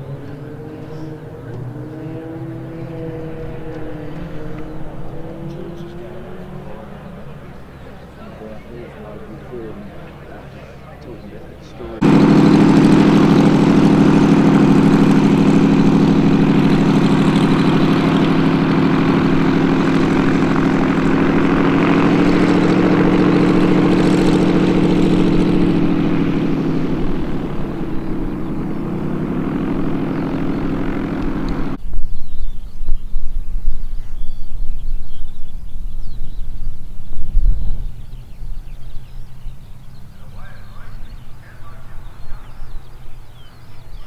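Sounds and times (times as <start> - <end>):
propeller plane engine drone: 0.0 - 44.0
wind rumble on microphone: 31.8 - 44.0.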